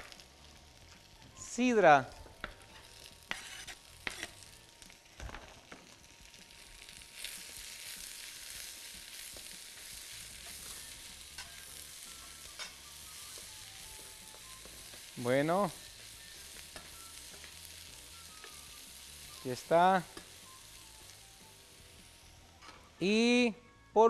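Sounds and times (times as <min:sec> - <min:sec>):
vegetables sizzling in pan: 0:00.0 - 0:23.2.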